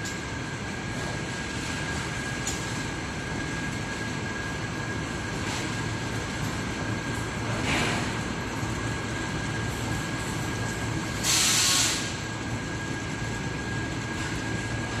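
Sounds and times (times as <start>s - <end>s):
workshop machinery hum with whine: 0.0s - 15.0s
loud burst of hiss: 11.2s - 12.2s.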